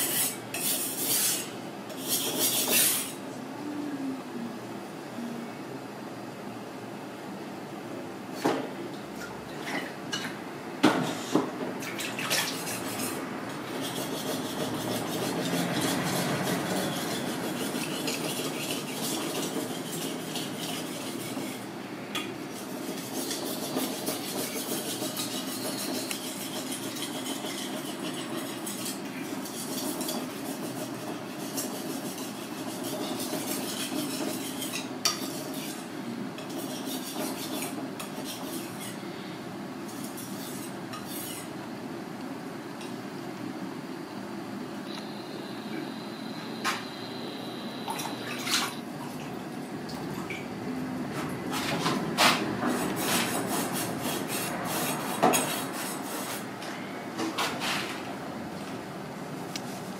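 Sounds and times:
knife scraping on wet whetstone: 0:00.0 - 0:03.2, 0:12.0 - 0:21.6, 0:22.5 - 0:39.0, 0:39.9 - 0:41.5, 0:52.2 - 0:56.4.

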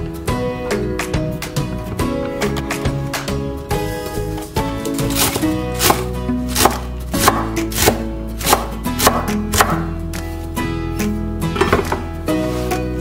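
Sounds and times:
soft background music: 0:00.0 - 0:13.0
knife chopping on wooden board: 0:05.0 - 0:09.9.

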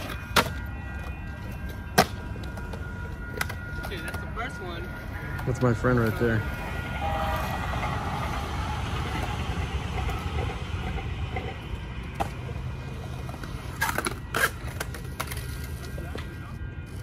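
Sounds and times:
skateboard clacking on concrete: 0:00.0 - 0:04.2, 0:13.2 - 0:16.4
skateboard wheels rolling on concrete: 0:00.0 - 0:17.0.

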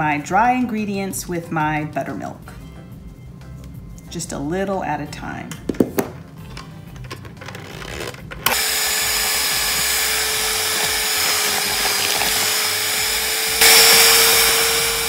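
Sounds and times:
electric hand mixer whining: 0:08.4 - 0:15.0.

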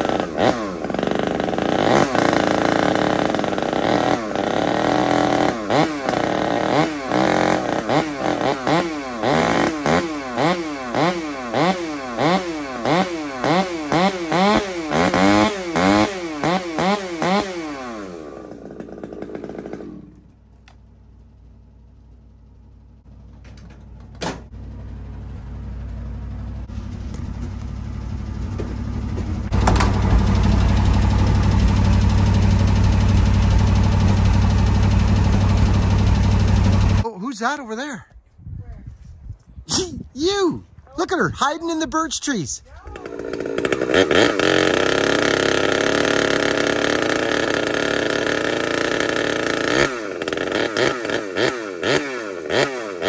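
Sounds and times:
chainsaw revving: 0:00.0 - 0:20.4, 0:29.5 - 0:37.0, 0:42.8 - 0:53.0
pickup truck engine running: 0:20.1 - 0:37.0.

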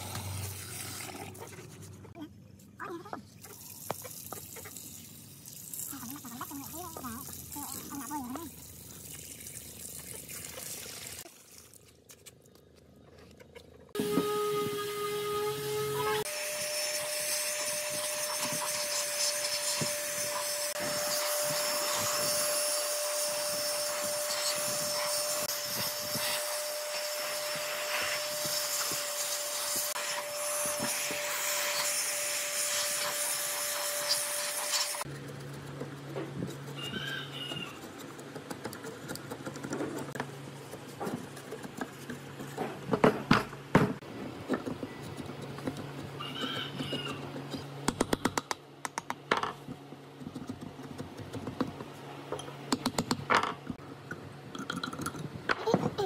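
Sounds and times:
chisel scraping wood: 0:35.0 - 0:42.9.

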